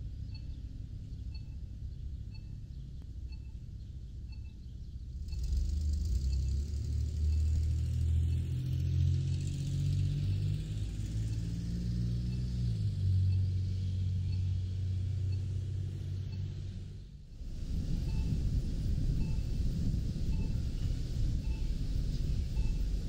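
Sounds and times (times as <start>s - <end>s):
traffic rumble: 0.0s - 23.0s
vehicle rumble with tyre hiss: 0.0s - 23.0s
pedestrian signal beeps: 0.3s - 0.6s, 1.3s - 1.7s, 2.3s - 2.6s, 3.3s - 3.7s, 4.3s - 4.6s, 17.8s - 23.0s.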